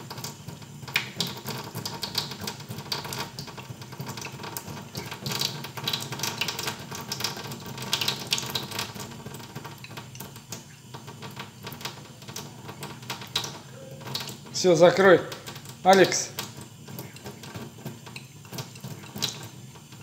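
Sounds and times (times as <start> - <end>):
tap water running into sink: 0.0 - 20.0
cat lapping water: 15.3 - 20.0.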